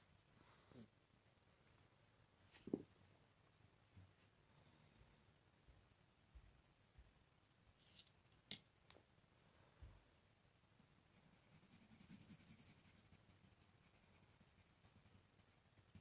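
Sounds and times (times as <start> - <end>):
pencil scratching on paper: 11.1 - 16.0.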